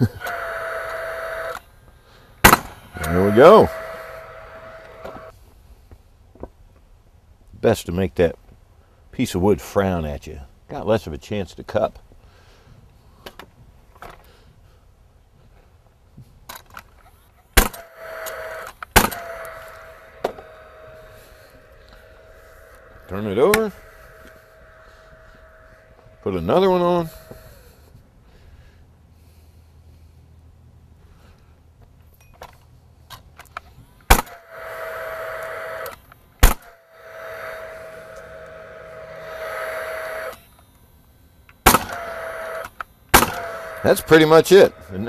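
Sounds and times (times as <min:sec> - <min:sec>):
tool fan whirring: 0:00.0 - 0:05.4, 0:16.7 - 0:28.7, 0:33.2 - 0:45.0
nail gun shots: 0:02.4 - 0:02.8, 0:17.6 - 0:19.6, 0:34.1 - 0:34.4, 0:36.4 - 0:36.8, 0:41.6 - 0:44.0.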